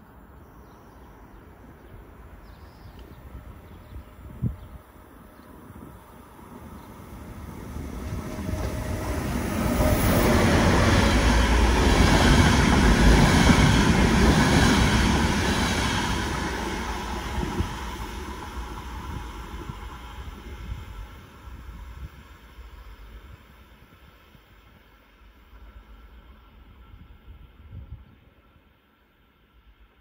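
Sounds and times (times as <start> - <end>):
train wheels rumbling on rails: 6.5 - 28.5.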